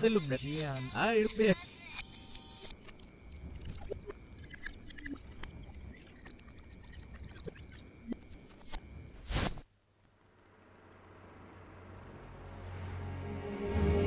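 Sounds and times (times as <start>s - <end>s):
low hum: 10.1s - 14.0s.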